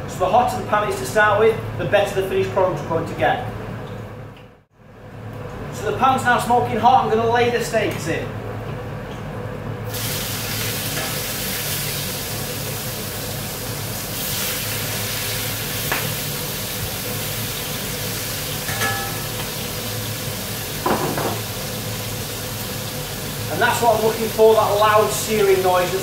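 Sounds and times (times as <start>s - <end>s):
steaks sizzling in a frying pan: 9.9s - 26.0s.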